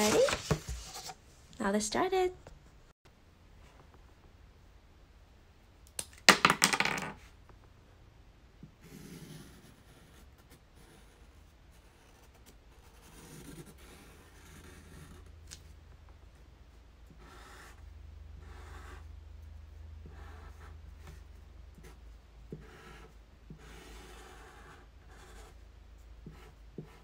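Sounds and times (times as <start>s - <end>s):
marker scratching on paper: 8.8s - 15.3s, 17.1s - 19.1s, 20.0s - 25.6s, 26.2s - 27.0s.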